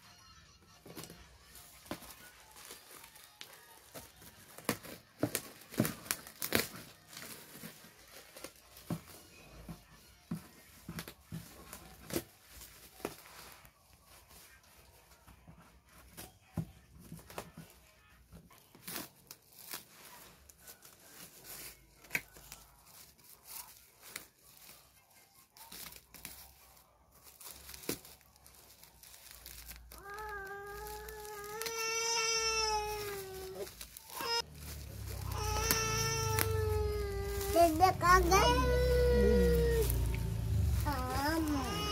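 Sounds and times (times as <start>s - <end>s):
plastic crinkling: 0.8s - 16.3s, 17.0s - 41.9s
scissors snipping bubble wrap: 1.8s - 9.2s, 18.6s - 24.8s, 25.5s - 26.6s, 27.2s - 41.9s.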